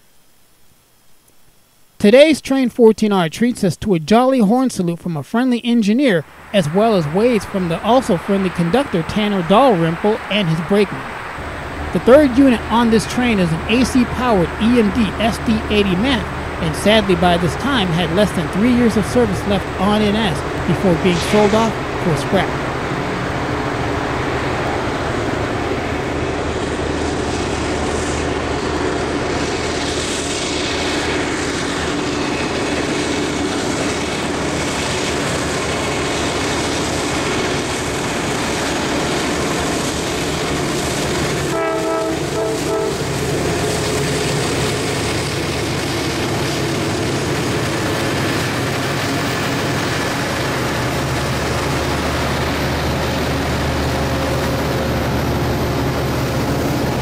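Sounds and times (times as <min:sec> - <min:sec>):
diesel locomotive engine drone: 0:05.6 - 0:57.0
train wheels on rails: 0:06.2 - 0:57.0
train horn toots: 0:41.4 - 0:44.0.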